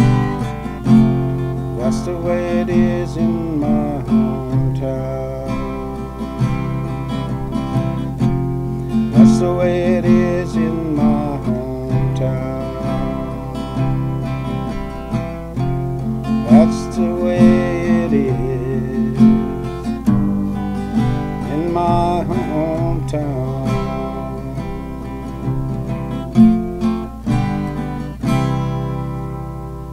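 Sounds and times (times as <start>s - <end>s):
acoustic guitar strumming: 0.0s - 29.9s.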